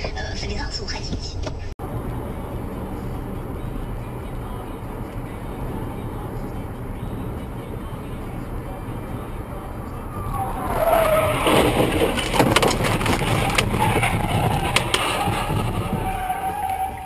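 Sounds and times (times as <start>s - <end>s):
car tyres squealing: 9.4s - 17.0s.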